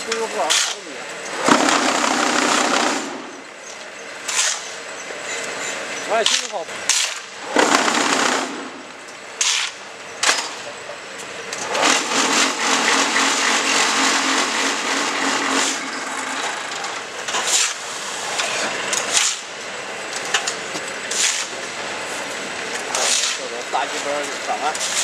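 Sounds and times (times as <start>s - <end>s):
machine vibrating buzz: 1.3s - 6.1s, 6.9s - 10.6s, 11.4s - 17.2s.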